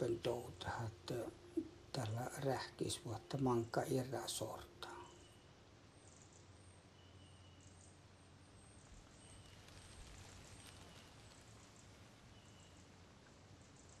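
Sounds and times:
faint high chirps: 4.8s - 13.0s.

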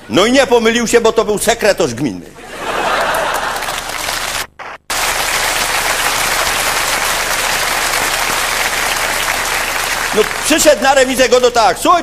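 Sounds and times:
audience applauding: 2.9s - 11.7s.

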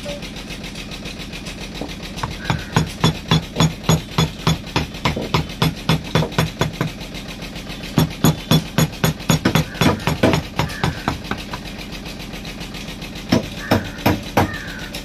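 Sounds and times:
hammer tapping chisel: 2.2s - 6.9s, 8.0s - 11.6s.

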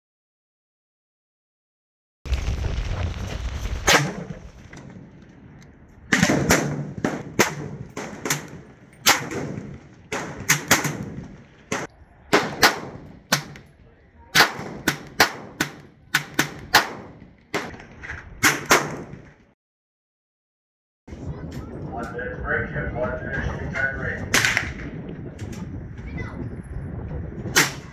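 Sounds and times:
gunshots with echo: 6.1s - 13.6s, 14.4s - 17.8s.

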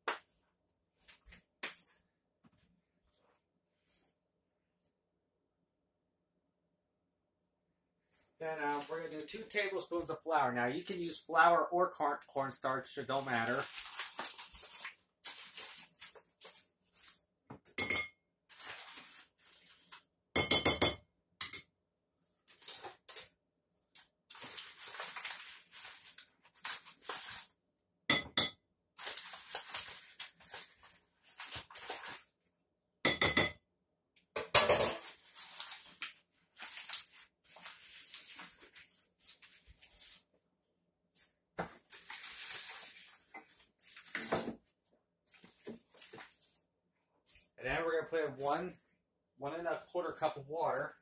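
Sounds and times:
plastic bag rustling: 13.3s - 17.2s, 18.5s - 20.0s, 24.3s - 27.5s, 29.0s - 32.3s, 35.0s - 40.2s, 41.7s - 44.3s, 45.3s - 46.6s
spoon clinking against bowl: 17.8s - 18.1s, 28.1s - 28.5s.

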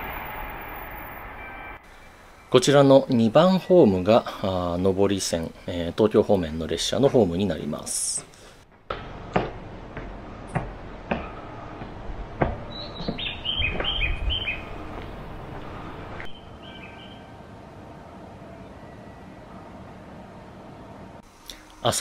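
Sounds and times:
bird chirps: 12.7s - 14.7s, 16.2s - 17.3s.

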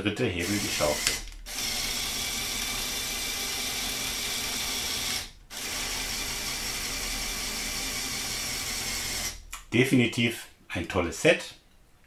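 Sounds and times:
electric motor and gears whirring: 0.2s - 9.4s.

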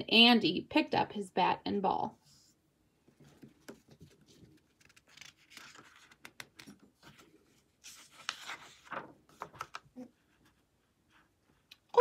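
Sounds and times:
paper page rustling: 3.2s - 10.0s.

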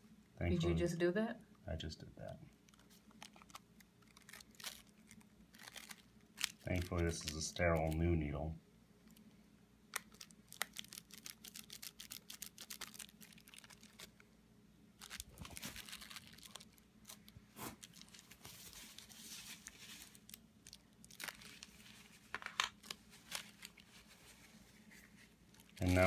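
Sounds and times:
bubble wrap crinkling and crackling: 2.5s - 8.3s, 9.9s - 14.3s, 14.9s - 26.0s.

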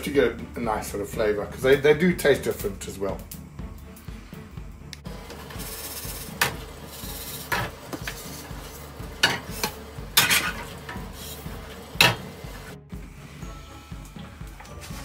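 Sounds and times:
gas hob hiss: 0.6s - 15.0s
frying pans clanking on hob: 5.5s - 12.7s.

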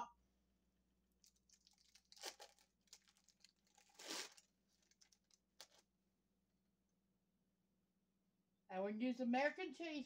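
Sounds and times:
plastic wrapper crinkling and tearing: 1.1s - 5.9s.

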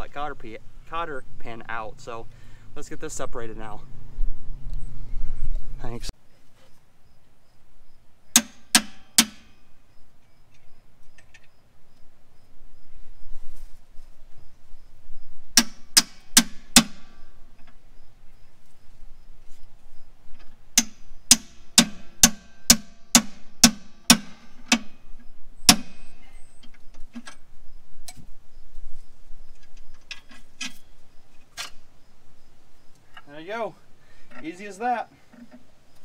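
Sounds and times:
hammer blows ringing on steel: 8.3s - 9.6s, 15.6s - 17.2s, 20.8s - 25.0s, 25.7s - 26.2s.

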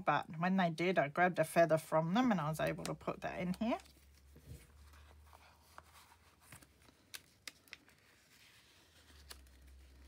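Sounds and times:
paper rustling: 3.8s - 10.0s.

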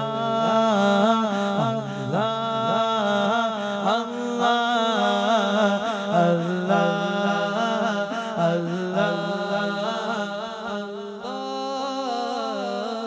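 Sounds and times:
person chanting devotional song: 0.0s - 13.0s.

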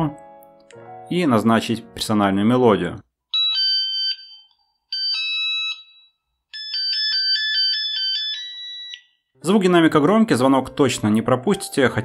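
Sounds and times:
phone ringtone melodies: 3.3s - 9.8s.

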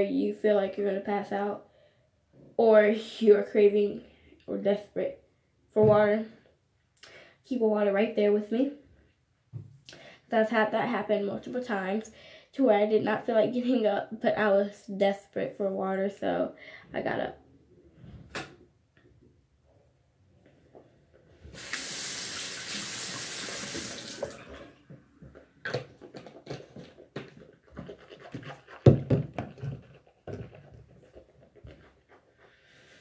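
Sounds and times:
sink tap running: 21.5s - 24.4s.

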